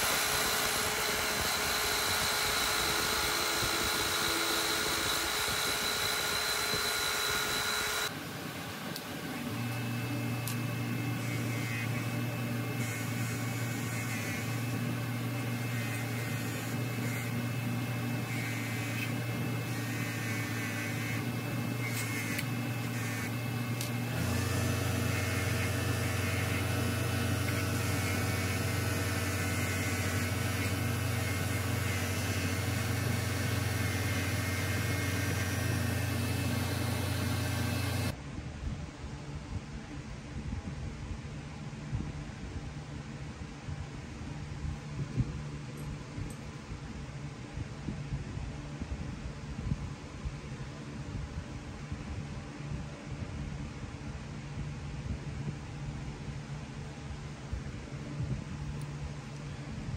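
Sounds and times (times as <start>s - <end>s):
small electric motor humming: 0.0s - 38.2s.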